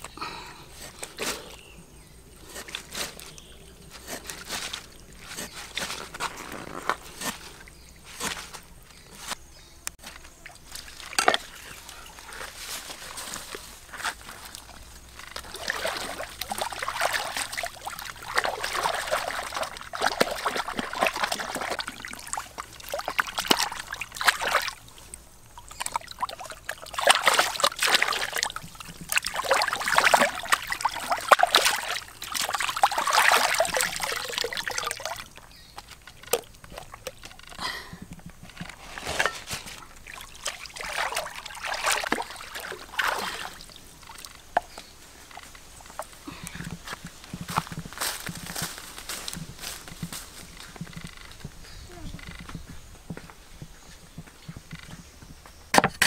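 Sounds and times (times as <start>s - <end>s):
water splashing and sloshing: 2.4s - 9.4s, 10.0s - 52.6s
trickling water: 9.9s - 53.3s.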